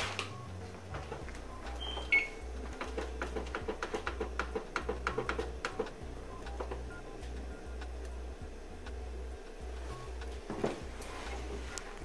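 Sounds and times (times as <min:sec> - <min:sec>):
control panel beeps: 0:00.2 - 0:03.4, 0:04.0 - 0:08.2.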